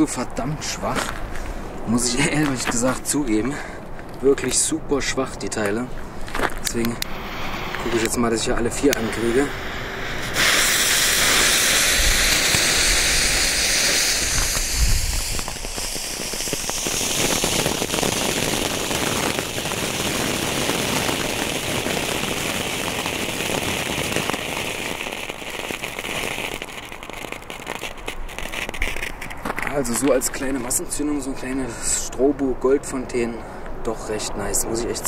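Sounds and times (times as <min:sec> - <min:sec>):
crackling pops: 0:05.6 - 0:31.0
fountain fireworks hissing spray: 0:07.0 - 0:30.4.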